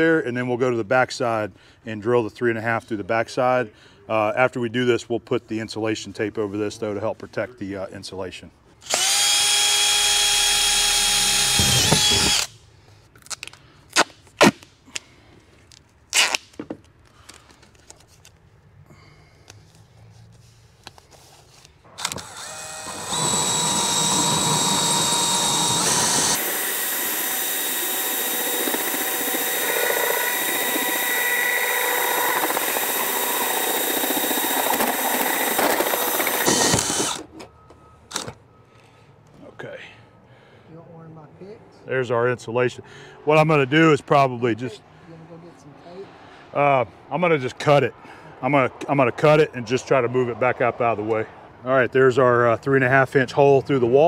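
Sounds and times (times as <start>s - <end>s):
hole saw grinding through steel: 8.8s - 12.5s, 22.0s - 37.3s
cordless drill whining: 8.8s - 12.6s, 22.0s - 37.4s, 38.1s - 38.3s.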